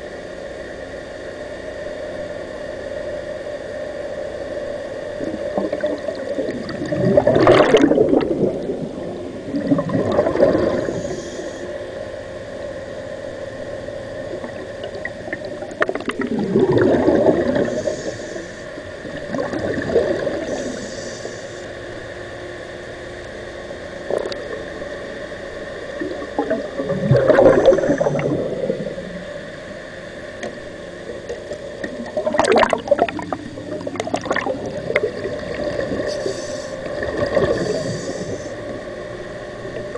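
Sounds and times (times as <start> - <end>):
steady faint tone: 0.0 - 39.9
gurgling exhaled bubbles: 5.2 - 11.5, 14.2 - 18.4, 19.0 - 20.9, 24.1 - 24.9, 25.9 - 29.5, 31.1 - 38.6.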